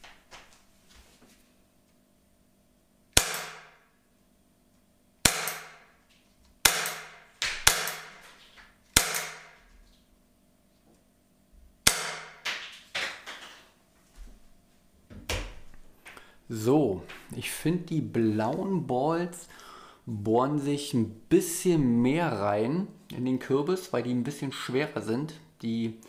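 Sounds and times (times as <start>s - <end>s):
airgun shots cracking: 3.2s - 3.8s, 5.2s - 5.9s, 6.6s - 8.2s, 9.0s - 9.6s, 11.8s - 12.4s.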